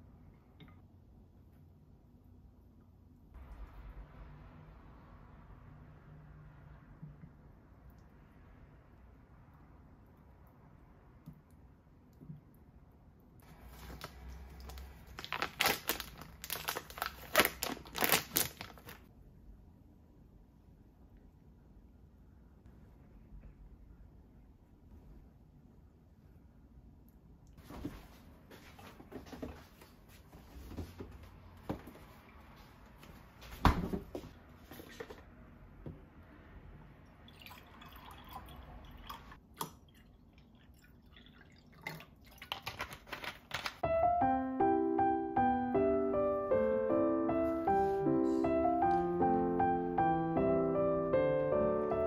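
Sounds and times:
plastic packaging crinkling: 0:13.5 - 0:19.1, 0:42.4 - 0:43.8.

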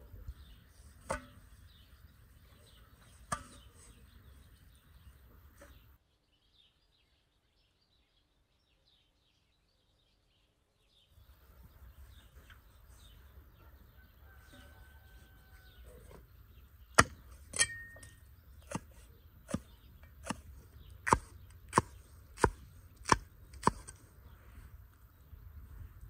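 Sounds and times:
cleaver chopping on wooden block: 0:19.5 - 0:23.9.

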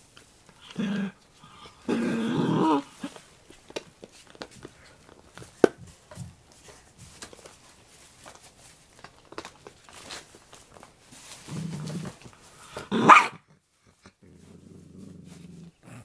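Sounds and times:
dog growling and snarling: 0:00.6 - 0:03.2, 0:11.4 - 0:16.0
small clicks and taps: 0:03.5 - 0:06.3.

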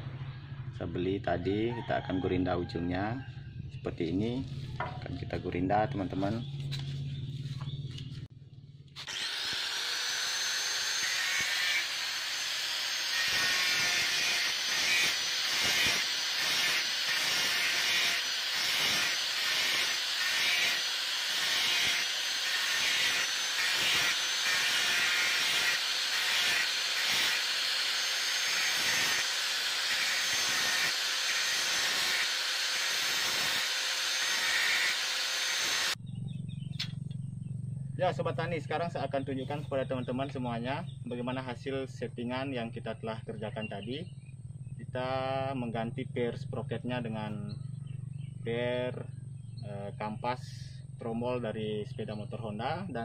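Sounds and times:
angle grinder grinding metal: 0:08.9 - 0:36.0.

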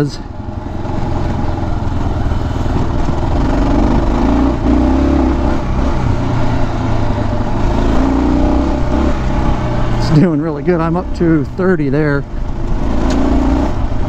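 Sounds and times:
motorcycle engine accelerating: 0:00.0 - 0:14.0
road and wind noise: 0:00.0 - 0:14.0.

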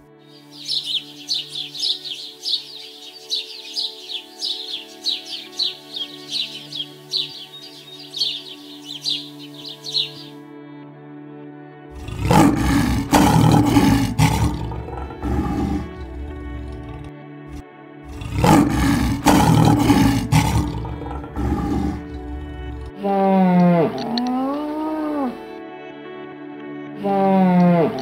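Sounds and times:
background music: 0:00.0 - 0:28.0
lion roaring: 0:11.9 - 0:25.4.

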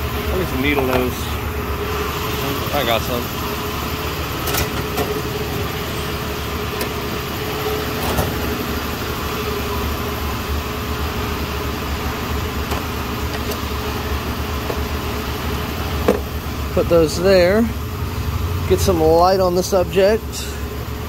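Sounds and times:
workshop machinery hum: 0:00.0 - 0:21.0.

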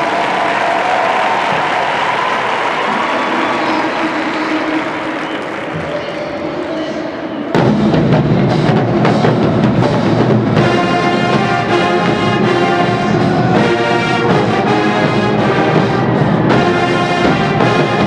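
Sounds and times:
marching band playing: 0:07.4 - 0:18.0.

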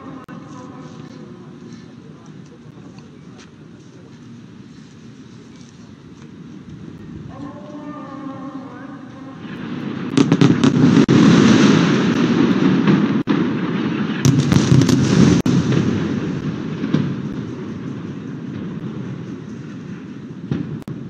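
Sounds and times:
loud continuous rumble: 0:00.0 - 0:10.2
bomb explosions: 0:08.5 - 0:21.0.

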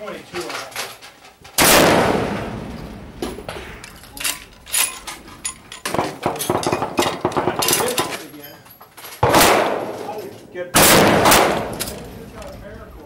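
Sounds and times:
rifle shot with ringing decay: 0:01.6 - 0:03.6, 0:09.2 - 0:10.0, 0:10.8 - 0:12.2.

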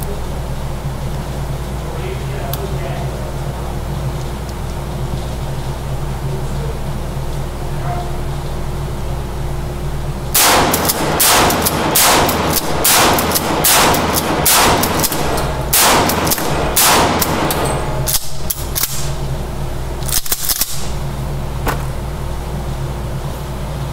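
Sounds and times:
shotgun blasts echoing indoors: 0:10.3 - 0:21.3
sharp cracks: 0:10.4 - 0:21.1.

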